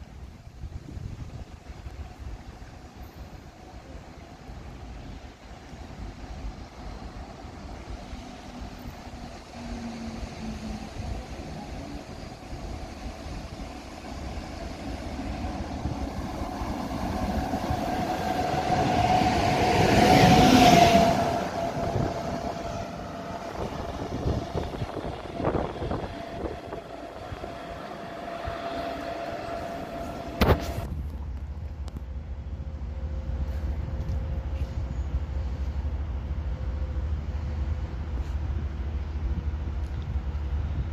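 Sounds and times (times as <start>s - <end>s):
electric train passing: 0.0s - 40.9s
steady high tone: 15.0s - 30.9s.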